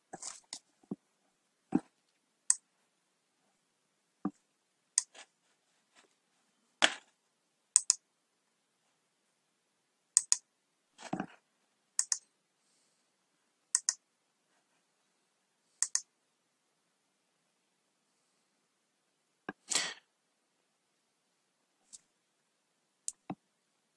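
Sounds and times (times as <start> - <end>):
keyboard and mouse clicks: 7.8 - 8.0, 10.2 - 10.4, 12.0 - 12.3, 13.8 - 14.0, 15.8 - 16.1.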